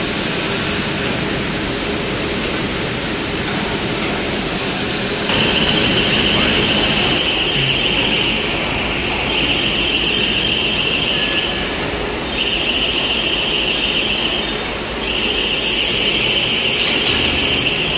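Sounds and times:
machine noise: 0:00.0 - 0:17.9.

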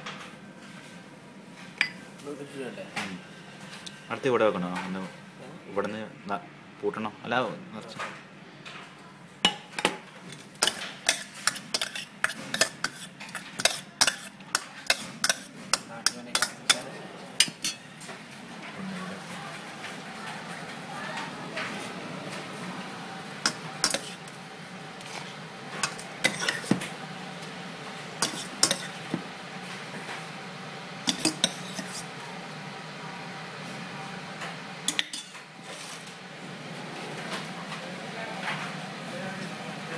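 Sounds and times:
metal spoon clinking in steel bowl: 0:10.6 - 0:15.5, 0:16.1 - 0:16.8.

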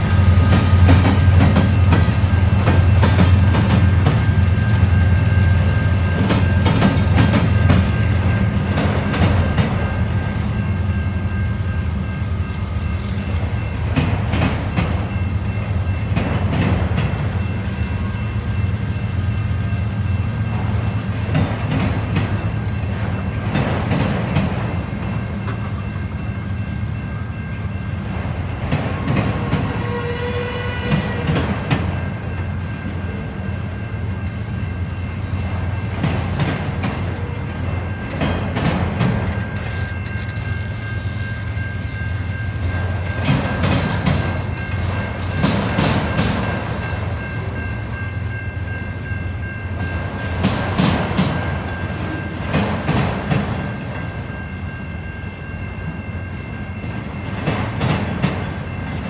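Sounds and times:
freight train rumbling past: 0:00.0 - 0:59.0
high wheel squeal: 0:29.4 - 0:46.2
wheel clacks over rail joints: 0:31.0 - 0:47.2.

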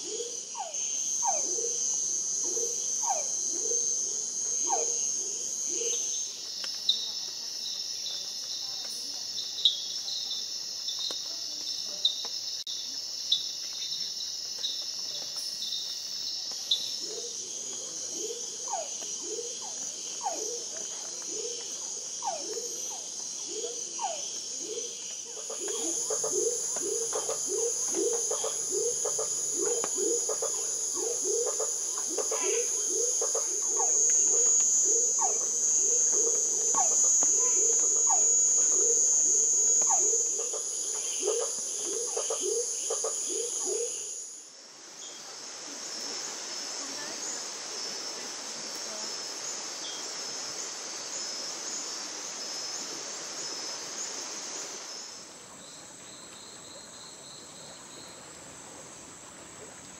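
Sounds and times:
frogs calling: 0:00.0 - 0:44.4
insects trilling: 0:00.0 - 0:59.9.

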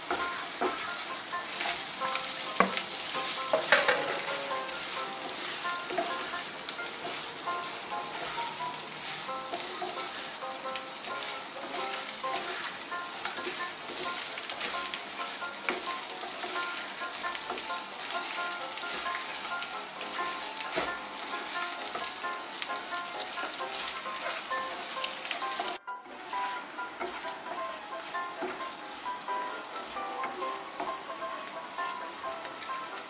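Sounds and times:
vegetables sizzling in oil: 0:00.0 - 0:33.0
spatula tapping against pan: 0:00.1 - 0:19.4, 0:26.4 - 0:31.1.

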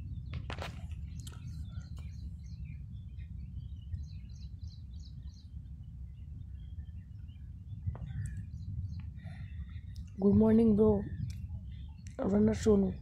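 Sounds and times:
birds chirping: 0:00.0 - 0:13.0
steady low rumble: 0:00.0 - 0:13.0.

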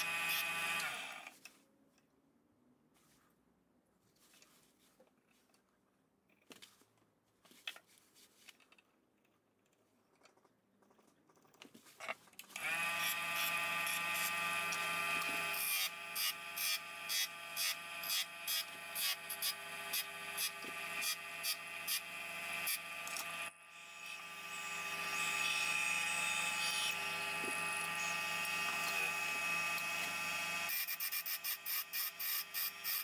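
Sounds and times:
turning tool cutting wood bursts: 0:00.0 - 0:01.4, 0:12.5 - 0:33.0
wood lathe whining: 0:12.6 - 0:30.9.

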